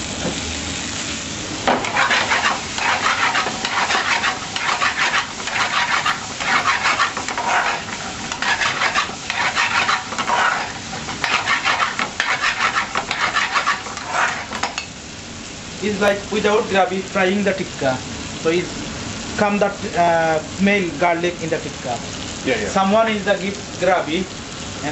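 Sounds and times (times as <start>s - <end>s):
meat sizzling in a pan: 0.0s - 24.9s
metal ladle scraping a pan: 1.8s - 14.9s.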